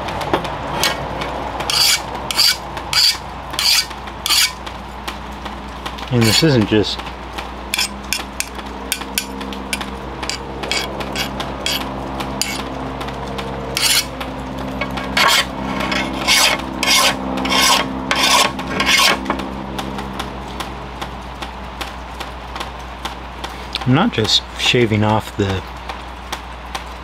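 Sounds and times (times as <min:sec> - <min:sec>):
file scraping metal blade: 0:01.7 - 0:04.6, 0:06.2 - 0:06.6, 0:07.8 - 0:12.7, 0:13.8 - 0:14.1, 0:14.8 - 0:19.4.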